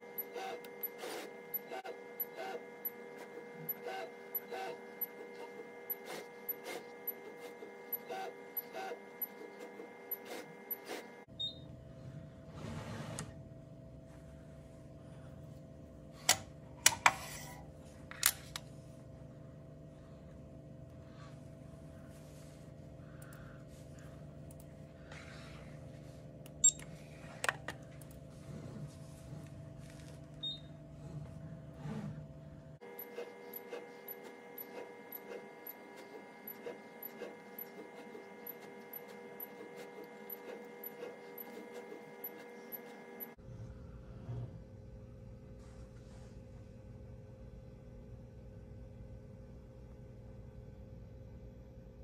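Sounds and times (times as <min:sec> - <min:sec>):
machine drives whining: 0:00.0 - 0:13.4, 0:22.2 - 0:43.4.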